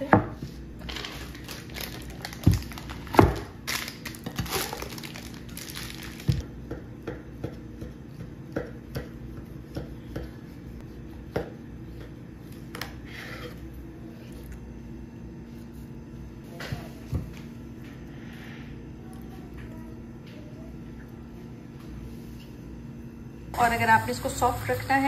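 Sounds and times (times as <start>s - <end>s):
sheet crinkling: 0.8s - 6.4s.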